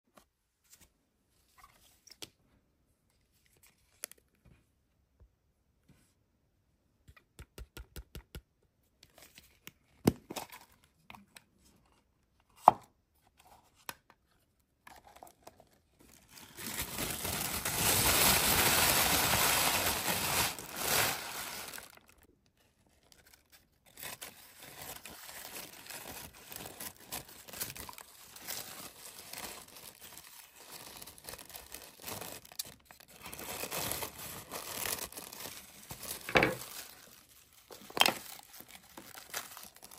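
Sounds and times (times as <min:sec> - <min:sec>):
tissue paper crinkling: 0:15.0 - 0:39.9.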